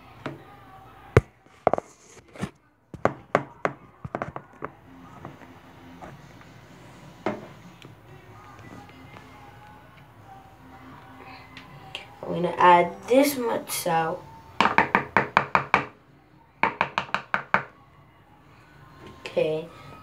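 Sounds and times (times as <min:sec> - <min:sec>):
objects knocking on hard counter: 0:03.0 - 0:04.8, 0:07.2 - 0:07.5, 0:14.6 - 0:15.9.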